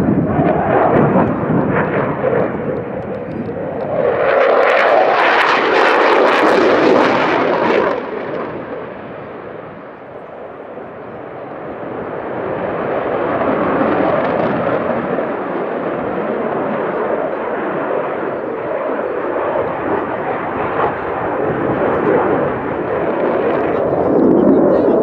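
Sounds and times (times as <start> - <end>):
aircraft engine rush: 0.0 - 25.0.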